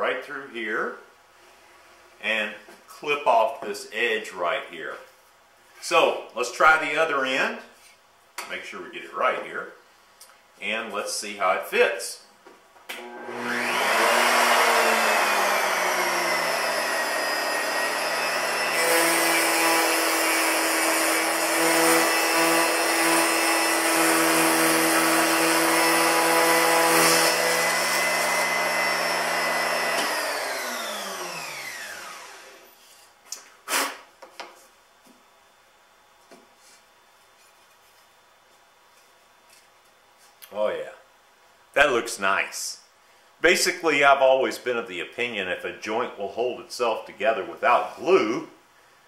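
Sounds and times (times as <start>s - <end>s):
router whining: 12.9s - 32.8s
router bit cutting plywood: 13.0s - 32.7s.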